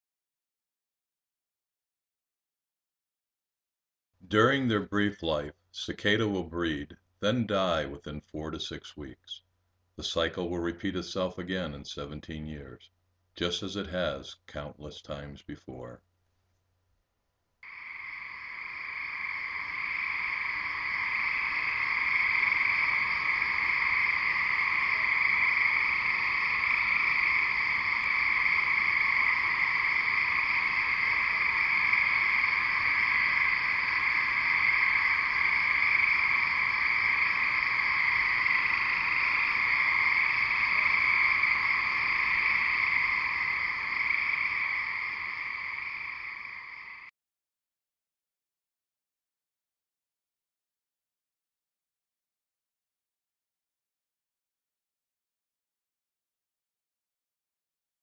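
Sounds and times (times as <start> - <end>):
cicadas buzzing drone: 17.6 - 47.1.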